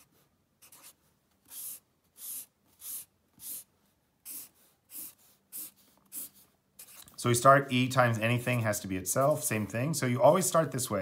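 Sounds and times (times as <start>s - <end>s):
marker drawing on paper: 0.0s - 7.1s.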